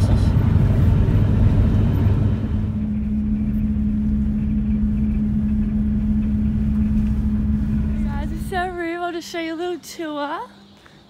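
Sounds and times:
road and engine rumble: 0:00.0 - 0:11.0
steady low hum: 0:00.0 - 0:11.0.

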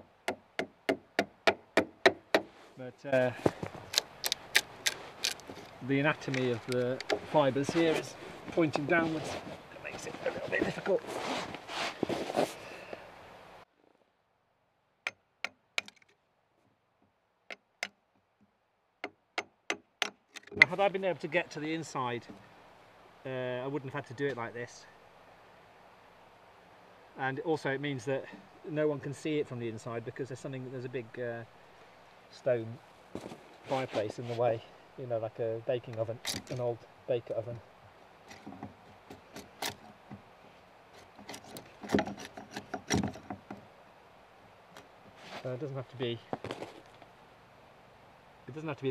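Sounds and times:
chisel knocks: 0:15.1 - 0:16.1, 0:19.0 - 0:20.8.

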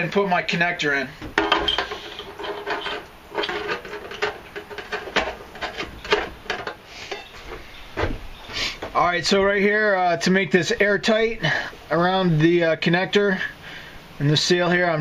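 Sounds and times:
metal clicks taps and scraping: 0:01.2 - 0:07.6.

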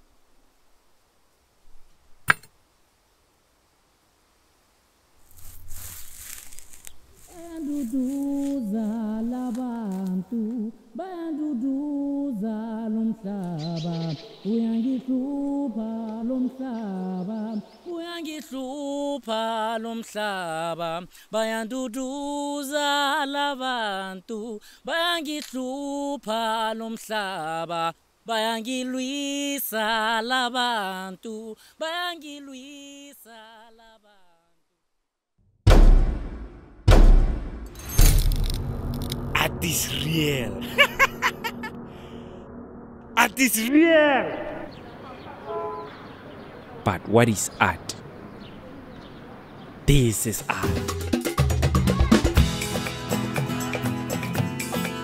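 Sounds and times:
person singing wordless notes: 0:07.2 - 0:20.8, 0:39.4 - 0:41.7, 0:43.2 - 0:45.0.

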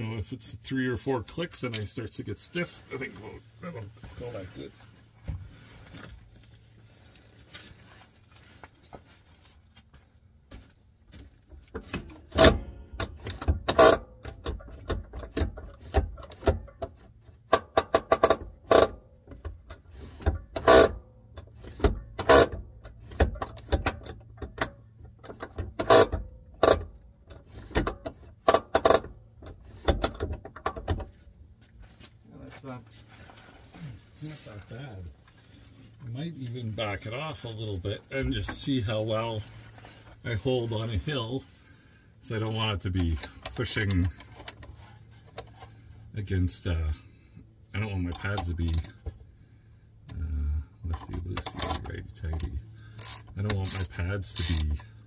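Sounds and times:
parking brake lever clicks and clunks: 0:11.7 - 0:31.2, 0:48.1 - 0:49.2, 0:50.9 - 0:55.0.

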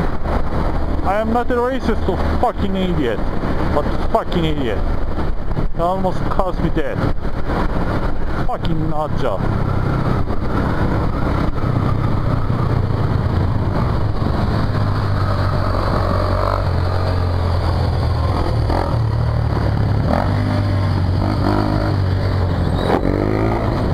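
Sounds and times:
motorcycle engine running: 0:09.7 - 0:23.9.

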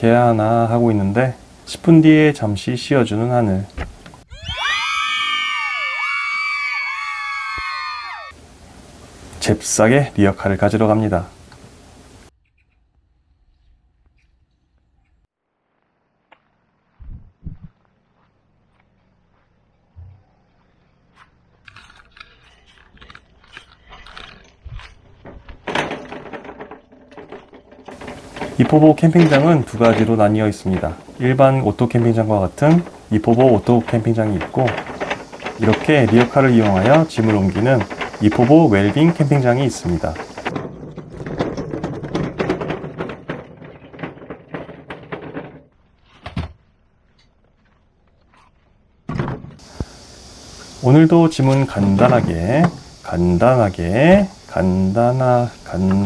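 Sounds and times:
hand cart rattling and clanking: 0:24.1 - 0:45.8, 0:50.8 - 0:56.0.

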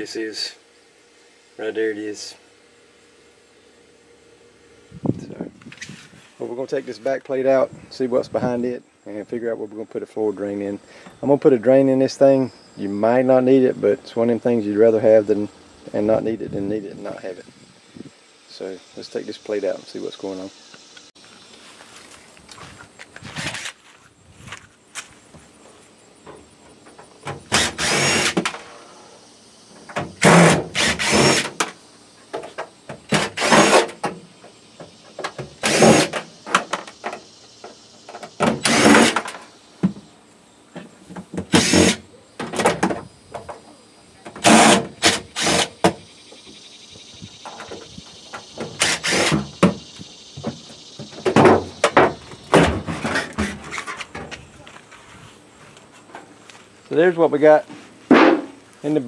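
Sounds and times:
power drill bursts: 0:27.4 - 0:28.6, 0:30.1 - 0:31.7, 0:33.1 - 0:34.0, 0:35.6 - 0:36.3, 0:38.4 - 0:39.3, 0:41.5 - 0:42.0, 0:44.4 - 0:45.8, 0:48.7 - 0:49.5.

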